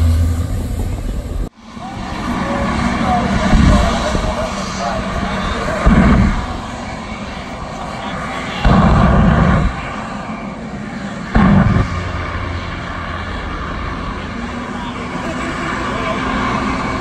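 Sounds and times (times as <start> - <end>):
jet engine running: 0.0 - 17.0
loud flame bursts: 5.6 - 6.9, 8.2 - 10.4, 11.2 - 14.2.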